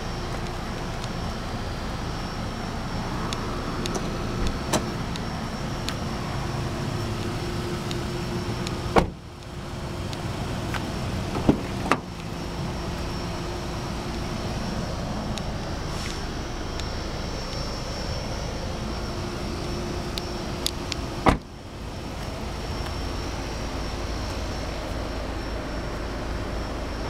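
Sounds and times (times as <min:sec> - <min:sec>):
car door shutting: 0:03.9 - 0:05.1, 0:08.2 - 0:09.2, 0:10.7 - 0:12.2, 0:21.0 - 0:21.5
sharp knocks of car door opening: 0:08.9 - 0:09.2, 0:11.3 - 0:12.1, 0:21.2 - 0:21.5.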